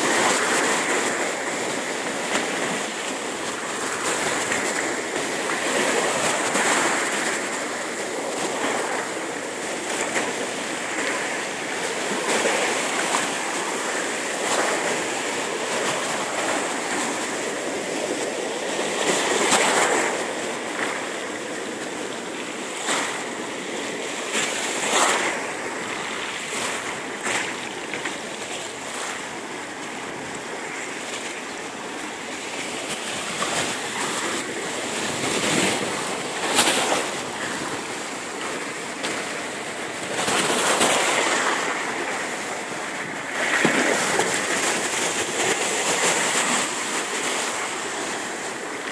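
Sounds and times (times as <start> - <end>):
water splashes: 0.0 - 48.9
waves washing over pebbles: 0.0 - 48.9.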